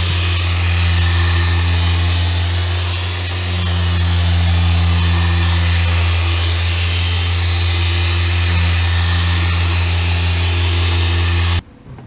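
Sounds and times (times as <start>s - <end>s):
polisher motor running: 0.0s - 11.6s
polishing hiss: 0.0s - 11.6s.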